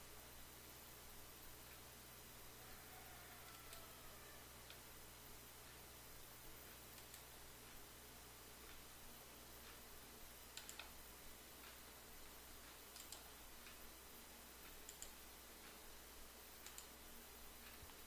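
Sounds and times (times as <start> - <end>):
low steady hum: 0.0 - 18.0
computer mouse clicks: 3.5 - 3.9, 6.9 - 7.4, 10.5 - 11.0, 12.6 - 13.8, 14.6 - 15.8, 16.6 - 17.0.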